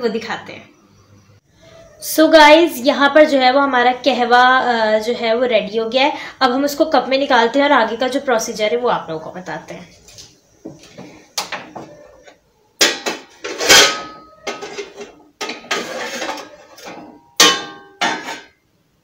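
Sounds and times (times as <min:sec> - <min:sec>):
pots and dishes clattering: 0:11.4 - 0:18.6.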